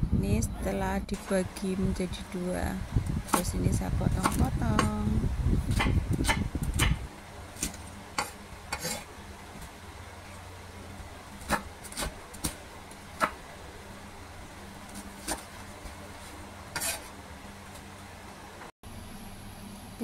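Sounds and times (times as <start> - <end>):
low steady hum: 0.0 - 20.0
knife chopping on wooden board: 4.2 - 5.0, 5.7 - 7.0, 11.4 - 12.6, 13.2 - 13.4.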